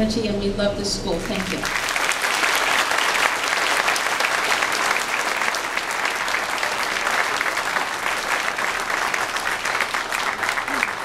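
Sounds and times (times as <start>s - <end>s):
audience applauding: 1.2s - 11.0s.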